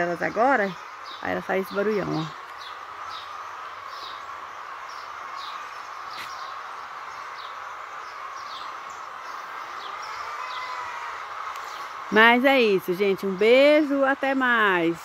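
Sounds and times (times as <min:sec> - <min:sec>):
chickens clucking: 0:05.4 - 0:12.2
short high falling chicken calls: 0:09.4 - 0:11.8.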